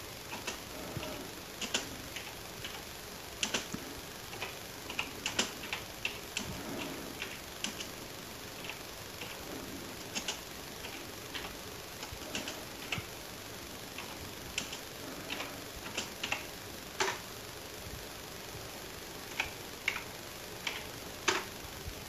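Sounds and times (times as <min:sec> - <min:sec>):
keyboard keys clicking: 0:00.3 - 0:02.8, 0:03.4 - 0:03.8.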